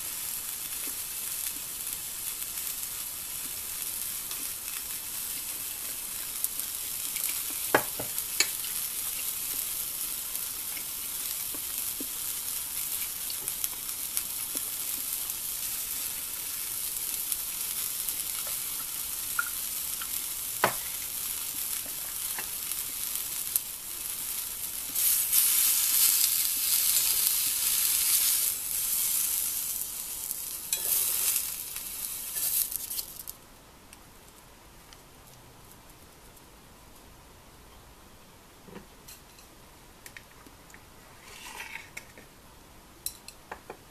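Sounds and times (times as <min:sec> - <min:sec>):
vegetables sizzling in a skillet: 0:00.0 - 0:33.4, 0:41.1 - 0:42.1.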